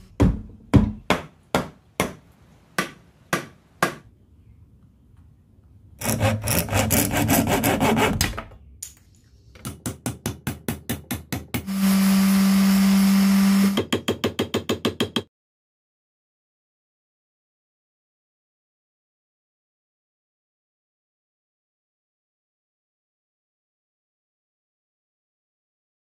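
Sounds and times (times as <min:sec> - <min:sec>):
hand saw cutting wood: 0:06.0 - 0:08.2
electric sander humming: 0:11.7 - 0:13.8.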